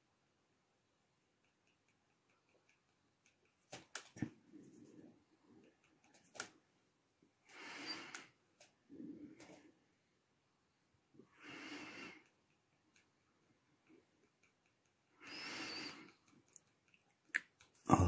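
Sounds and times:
faint clicks and taps: 1.2 - 5.0.

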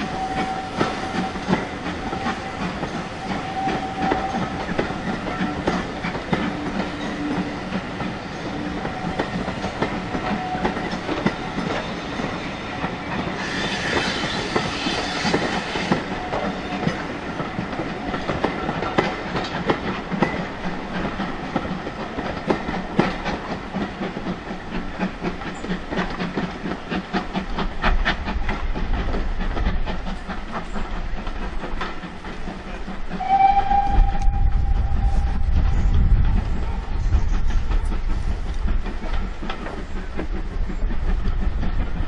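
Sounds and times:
train wheels clicking over rail joints: 0.0 - 42.0
steam whistle: 3.2 - 4.5, 33.2 - 35.6
low rumble: 33.4 - 38.8.

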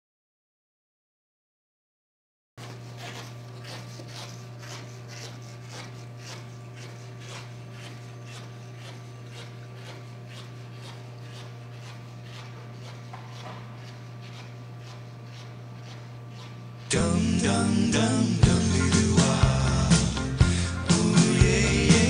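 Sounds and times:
steady low hum: 2.6 - 22.0
footsteps on hard floor: 13.0 - 14.5.

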